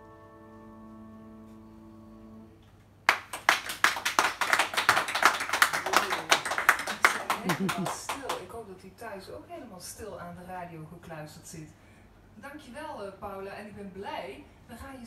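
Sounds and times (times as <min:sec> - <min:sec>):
piano chord ringing: 0:00.0 - 0:02.6
audience applause: 0:03.1 - 0:08.5.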